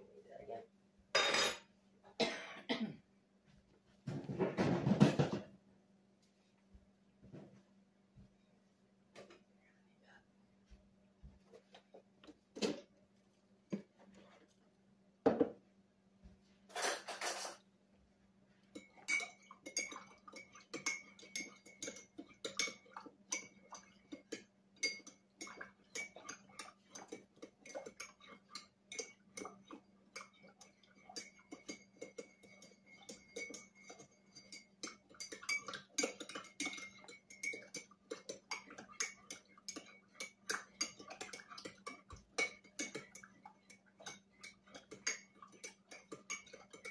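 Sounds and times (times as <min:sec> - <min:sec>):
spoon stirring in ceramic mug: 0:18.6 - 0:46.9.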